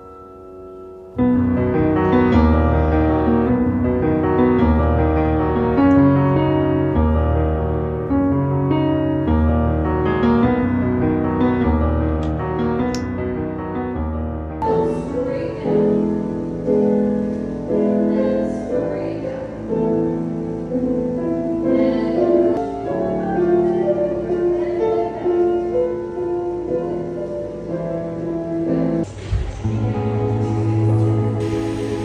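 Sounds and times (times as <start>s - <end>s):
piano background music: 0.0s - 32.0s.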